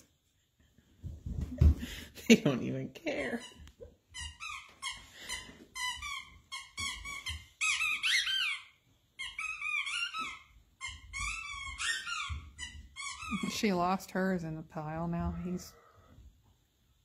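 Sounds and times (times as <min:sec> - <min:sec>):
squeaky dog toy squeaking: 0:03.2 - 0:13.8.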